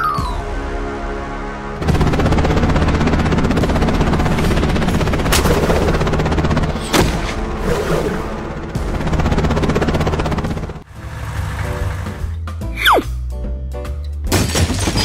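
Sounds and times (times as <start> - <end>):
helicopter rotors chopping: 1.8 - 10.9.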